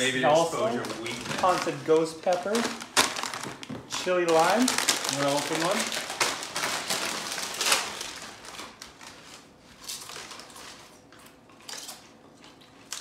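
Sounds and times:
foil snack bags crinkling: 0.0 - 11.1.

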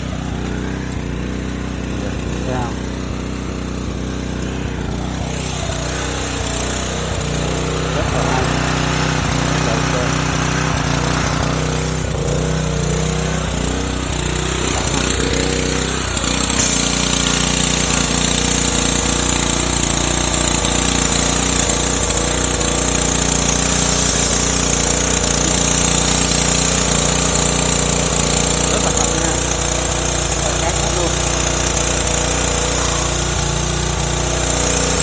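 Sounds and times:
pressure washer motor humming: 0.0 - 35.0
high-pressure spray hiss: 16.5 - 35.0.

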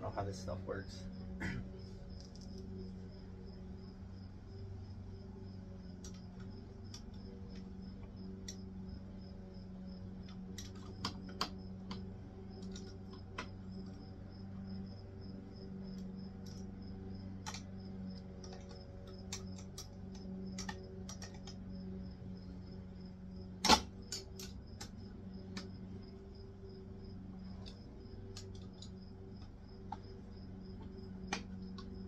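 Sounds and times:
steady low hum: 0.0 - 32.0
clicks and taps on metal parts: 18.4 - 21.6
sharp loud click: 23.6 - 24.5.

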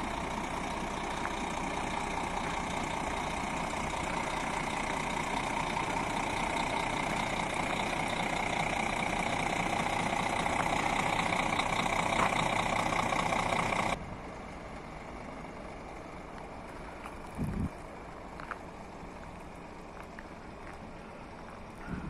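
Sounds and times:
diesel truck engine running: 0.0 - 22.0.

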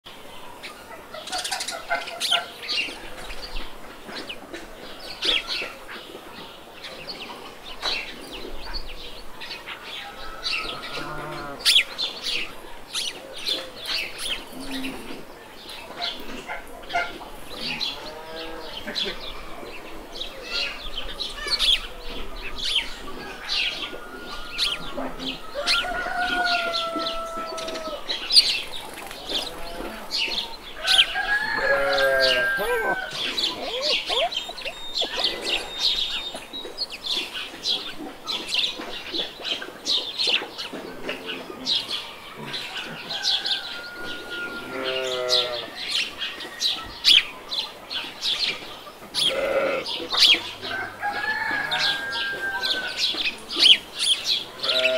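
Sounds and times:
small birds chirping: 0.3 - 54.9
chickens clucking: 0.4 - 54.9
long drawn-out calls: 29.2 - 36.2.

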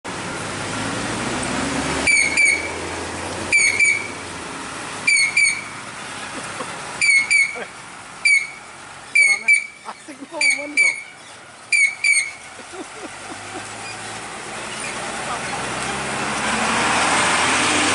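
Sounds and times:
truck diesel engine running: 0.1 - 17.9
high-pitched chirps: 5.1 - 5.8, 8.2 - 12.5.

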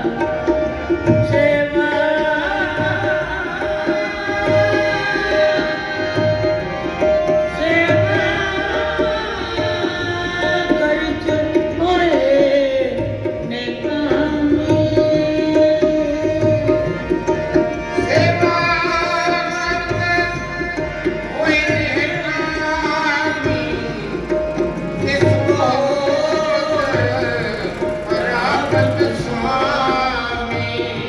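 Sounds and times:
tabla beat: 0.0 - 31.0
sustained melodic tones: 20.2 - 31.0.

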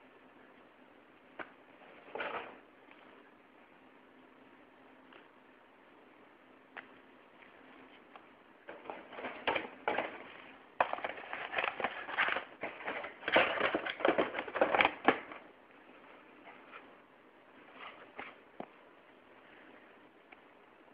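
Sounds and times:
packaging crinkling and rustling: 8.7 - 15.4.

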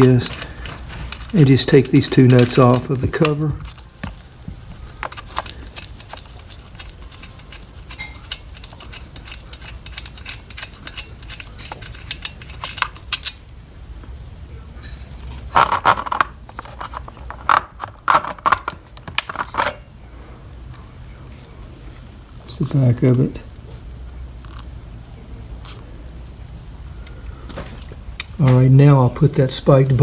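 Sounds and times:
metal hardware clattering: 0.0 - 4.3, 4.9 - 13.5
small metal clicks and rattling: 0.0 - 13.5.

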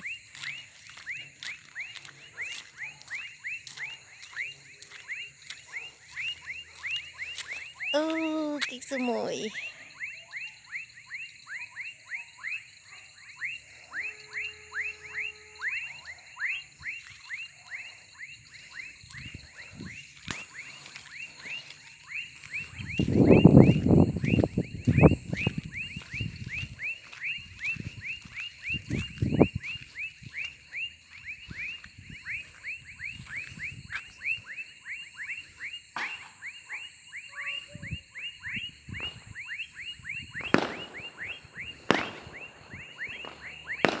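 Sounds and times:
high insect drone: 13.4 - 44.0.

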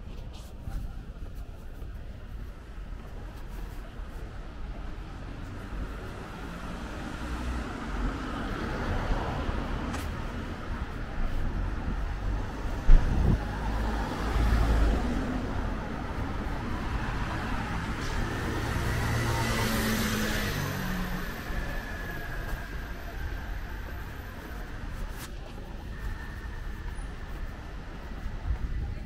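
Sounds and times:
low traffic rumble: 0.0 - 29.0
vehicles passing: 0.0 - 29.0
sharp low thump: 12.8 - 13.4.

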